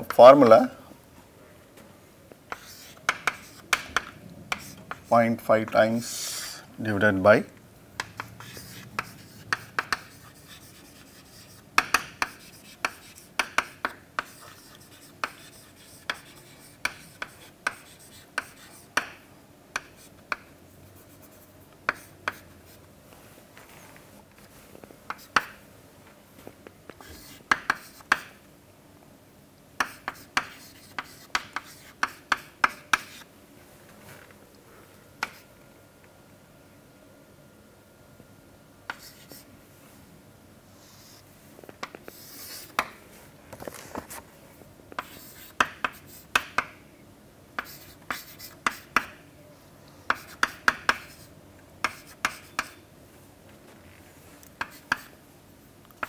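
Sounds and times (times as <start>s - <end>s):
chalk tapping and scratching: 2.5s - 6.6s, 8.0s - 19.2s, 19.8s - 22.8s, 25.1s - 25.6s, 26.9s - 28.4s, 29.8s - 33.3s, 35.2s - 35.5s, 38.9s - 39.5s, 41.8s - 43.0s, 45.0s - 46.8s, 47.6s - 49.2s, 50.1s - 52.8s, 54.6s - 55.2s.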